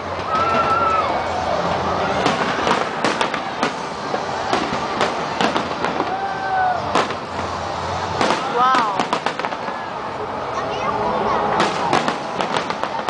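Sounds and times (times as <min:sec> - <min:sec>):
fireworks crackling: 0:00.0 - 0:13.0
firework shells bursting: 0:02.1 - 0:06.2, 0:06.8 - 0:10.0, 0:11.6 - 0:13.0.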